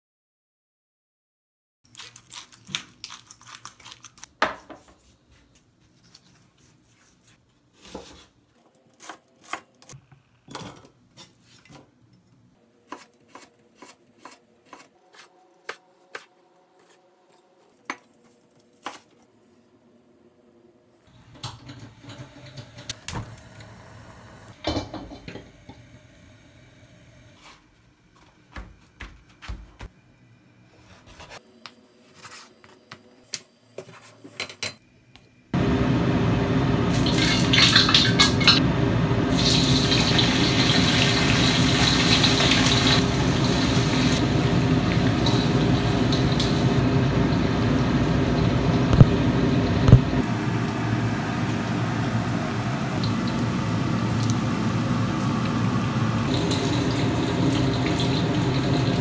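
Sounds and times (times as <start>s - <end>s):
meat deep-frying in hot oil: 36.9s - 59.0s.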